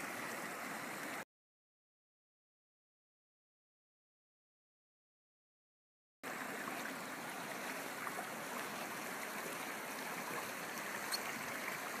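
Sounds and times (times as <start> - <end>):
stream flowing: 0.0 - 1.2, 6.2 - 12.0.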